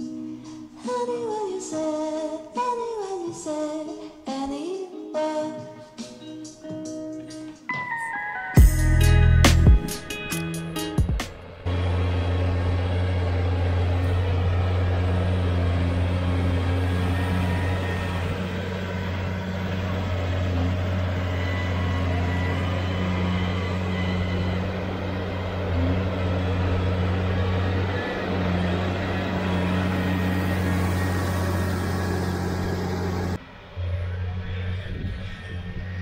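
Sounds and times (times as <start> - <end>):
tractor diesel engine running: 8.6 - 36.0.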